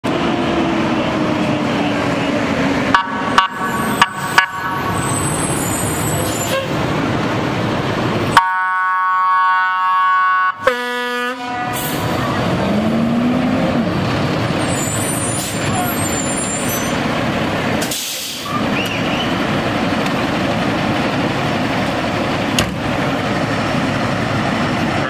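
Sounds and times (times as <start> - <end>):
fire engine horn honking: 2.9 - 6.8, 8.3 - 12.6
truck engine running: 11.8 - 25.0.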